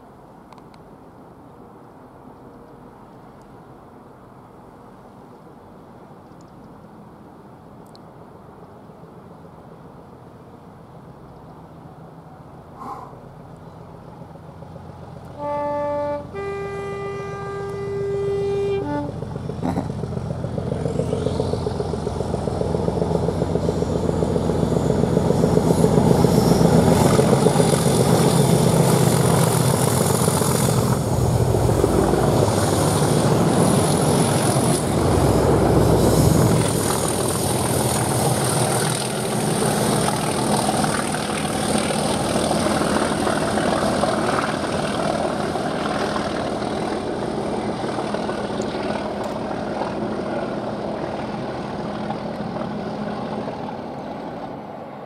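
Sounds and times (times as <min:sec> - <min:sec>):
diesel locomotive engines growling: 0:12.5 - 0:55.0
two-tone train horn: 0:15.3 - 0:19.4.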